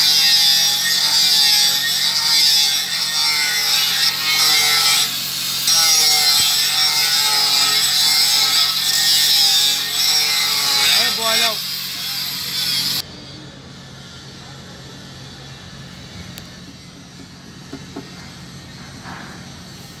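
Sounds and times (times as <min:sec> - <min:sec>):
angle grinder sanding pipe: 0:00.0 - 0:13.0.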